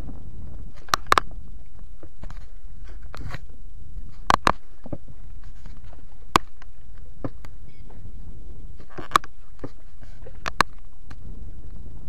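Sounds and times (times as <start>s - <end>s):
wind rumble on microphone: 0.0s - 12.0s
sharp clicks and knocks: 0.8s - 1.3s, 4.2s - 5.0s, 8.8s - 11.2s.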